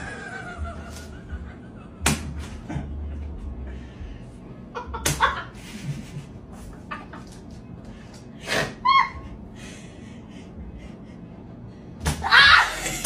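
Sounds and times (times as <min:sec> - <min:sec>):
sharp slap: 0:02.0 - 0:02.5, 0:05.0 - 0:05.3.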